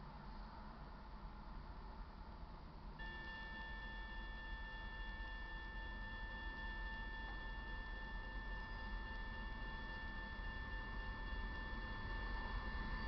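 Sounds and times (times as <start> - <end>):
crossing warning bell ringing: 3.0 - 13.0.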